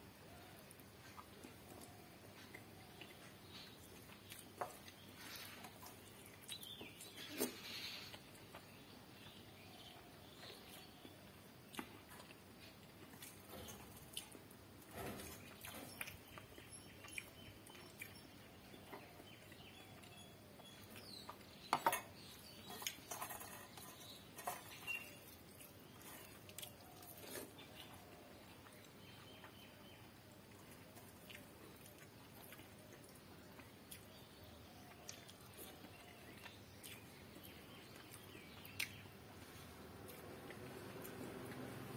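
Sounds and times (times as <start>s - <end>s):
chewing and lip-smacking: 30.5s - 39.1s.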